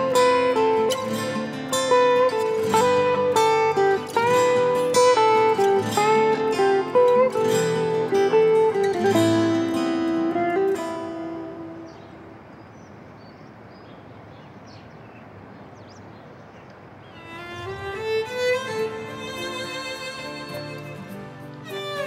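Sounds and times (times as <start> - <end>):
plucked acoustic guitar melody: 0.0 - 12.4, 17.2 - 22.0
faint background hiss: 0.0 - 22.0.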